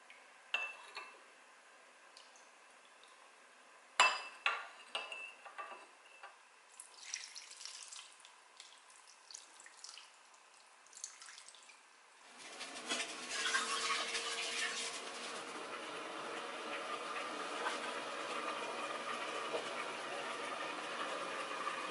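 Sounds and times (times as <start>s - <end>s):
soft wet sounds: 6.7s - 12.1s
liquid pouring and splashing: 6.8s - 15.5s.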